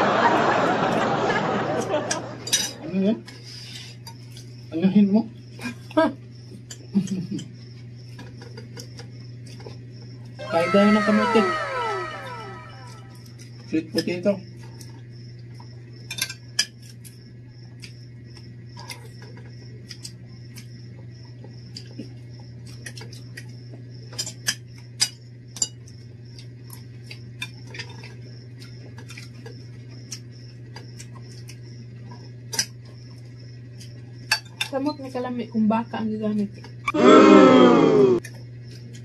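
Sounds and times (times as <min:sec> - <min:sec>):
steady low hum: 0:00.0 - 0:39.0
cutlery clinking on plates: 0:02.1 - 0:02.8.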